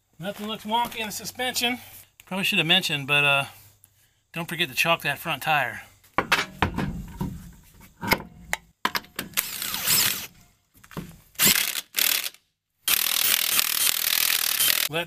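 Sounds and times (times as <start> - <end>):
impact wrench spinning lug nuts: 11.4 - 14.9.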